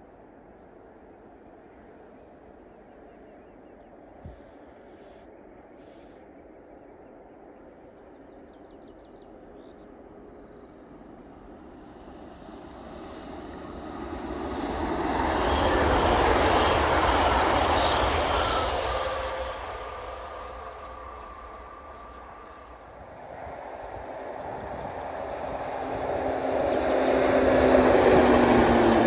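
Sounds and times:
electric train passing: 9.4 - 29.0.

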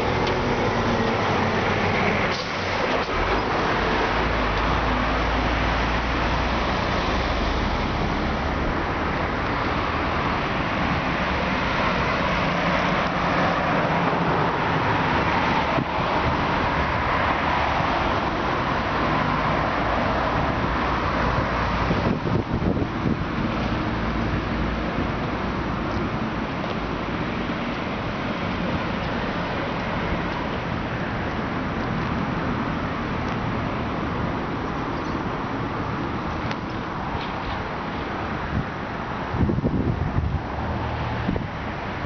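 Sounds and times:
cars passing: 0.0 - 42.0
truck passing with low rumble: 0.0 - 42.0.

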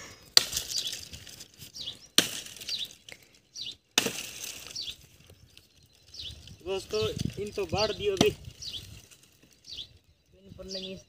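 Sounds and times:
axe chopping branches: 0.3 - 3.2, 3.8 - 5.1, 8.1 - 9.5
small bird chirping: 0.6 - 11.0.

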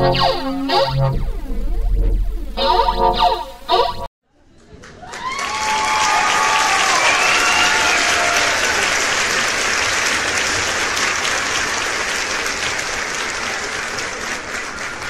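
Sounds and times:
audience applause: 4.8 - 15.0.

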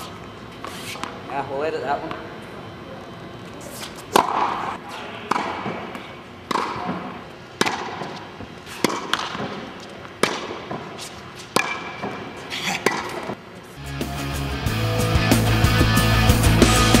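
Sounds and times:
tennis ball hits echoing: 4.1 - 4.7, 5.3 - 8.2, 8.8 - 10.9, 11.5 - 13.4
rock music: 13.8 - 17.0.

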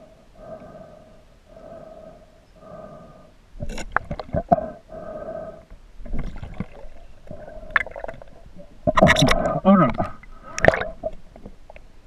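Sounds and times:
underwater river gurgling: 3.6 - 12.0.

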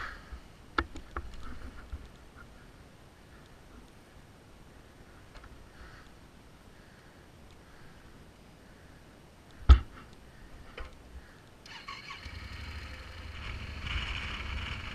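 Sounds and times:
motorcycle engine rumbling: 10.6 - 14.9.

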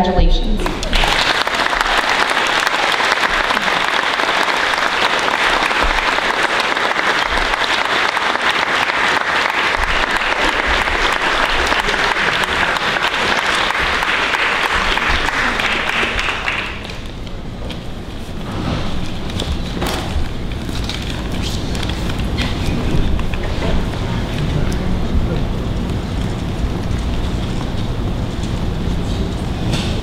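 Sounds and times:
audience applauding: 0.6 - 17.2.

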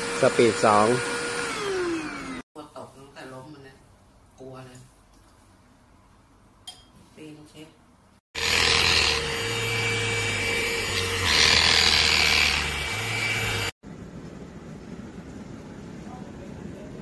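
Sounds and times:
handheld vacuum motor whine: 0.0 - 2.4, 8.4 - 13.7.

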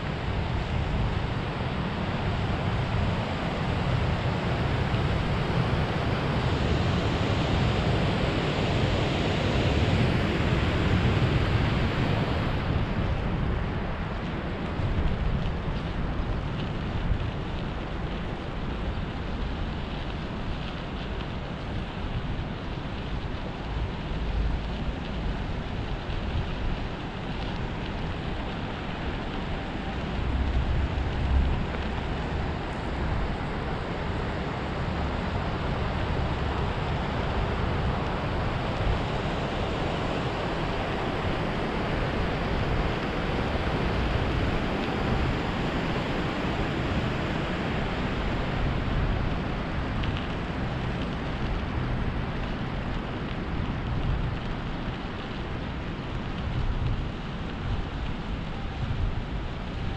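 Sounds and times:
deep rumble: 0.0 - 59.9
wind buffeting microphone: 0.0 - 59.9.

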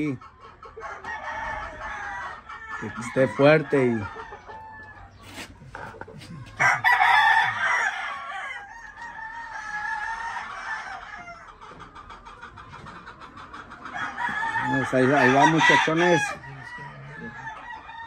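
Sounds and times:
rooster crowing: 6.6 - 11.5, 13.9 - 18.0.

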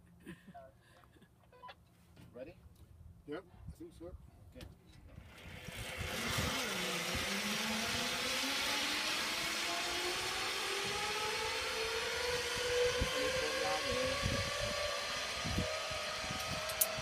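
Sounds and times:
zip-line pulleys on steel cable: 5.0 - 17.0.

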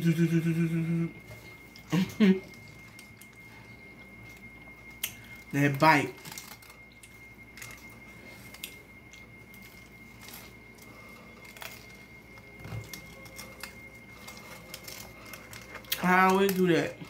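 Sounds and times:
chewing with sharp crunches: 6.2 - 17.0.

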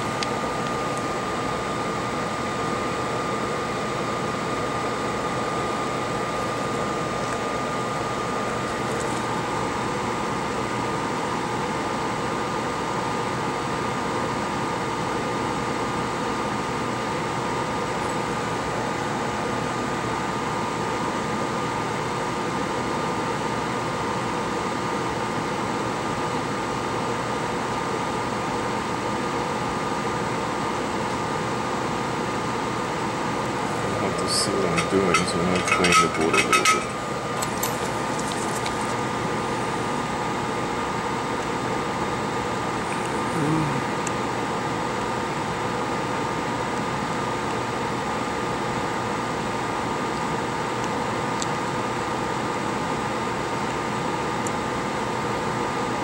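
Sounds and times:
fan hiss with high whine: 0.0 - 56.0.

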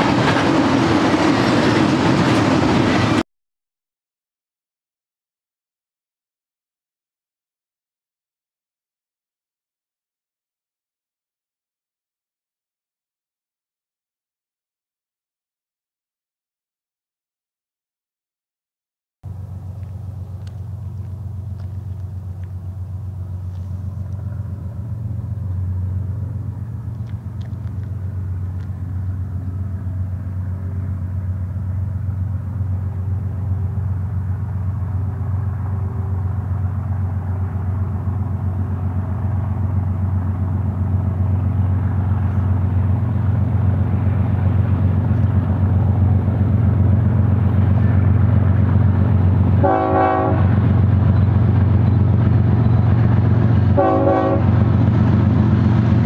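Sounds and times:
locomotive engine drone: 0.0 - 3.2, 19.2 - 56.0.

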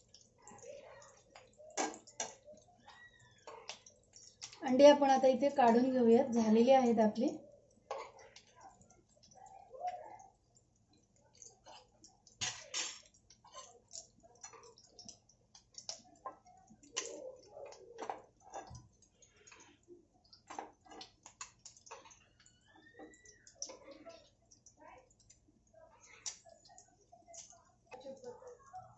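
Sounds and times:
hot oil crackling in a frying pan: 0.0 - 28.9.

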